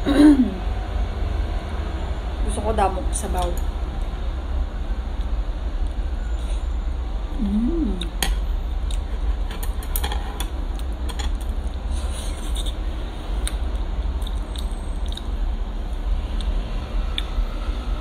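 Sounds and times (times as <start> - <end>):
low hum: 0.0 - 18.0
person chewing: 8.8 - 9.5, 10.7 - 15.4.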